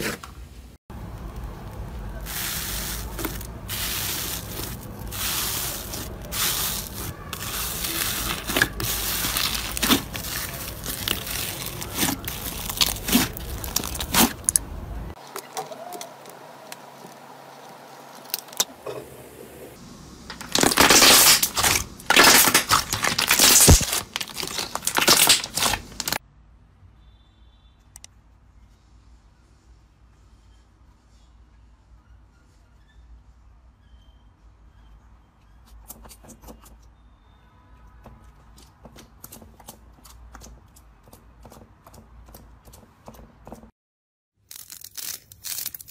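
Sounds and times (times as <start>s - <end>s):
hands squishing crackly slime: 2.3s - 14.6s, 20.4s - 26.2s, 44.5s - 45.9s.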